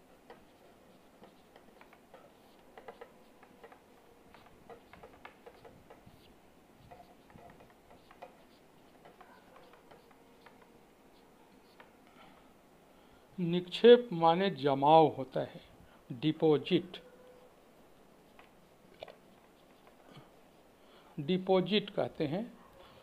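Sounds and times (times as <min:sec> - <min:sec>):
handwriting scratches and clicks: 0:00.3 - 0:11.9.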